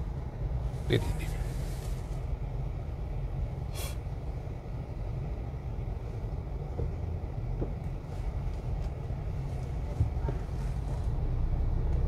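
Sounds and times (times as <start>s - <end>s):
car engine and road rumble: 0.0s - 12.0s
brief hiss: 3.7s - 4.0s.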